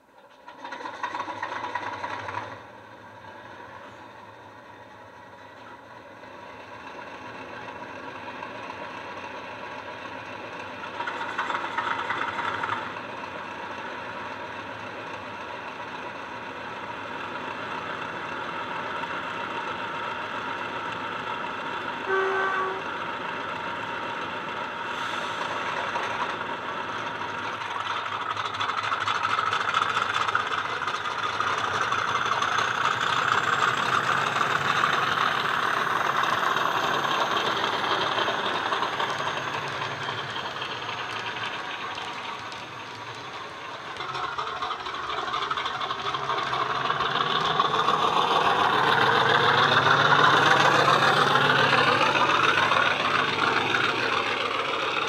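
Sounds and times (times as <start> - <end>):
model locomotive diesel engine sound: 0.0 - 55.0
locomotive horn toot: 22.1 - 23.0.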